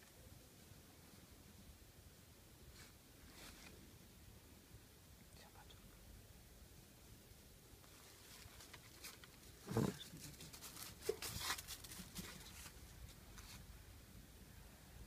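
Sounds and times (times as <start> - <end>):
dog grunting: 9.6 - 10.0.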